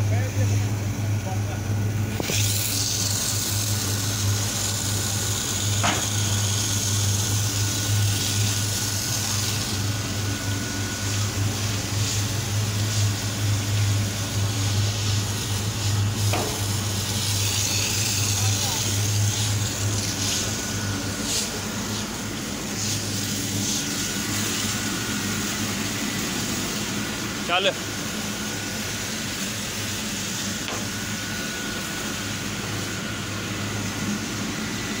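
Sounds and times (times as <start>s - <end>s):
engine and pump droning: 0.0s - 35.0s
water jet hissing: 2.1s - 27.8s.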